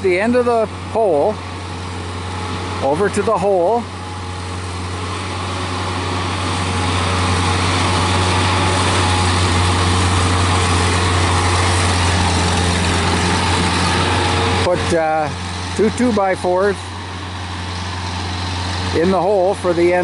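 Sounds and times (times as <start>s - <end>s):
diesel engine running: 0.0s - 20.0s.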